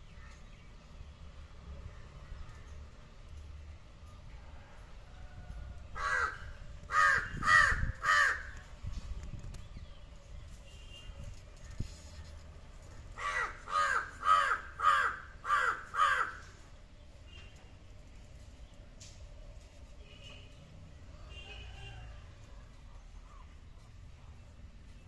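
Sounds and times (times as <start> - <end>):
crow cawing: 6.0 - 8.6, 13.2 - 16.5.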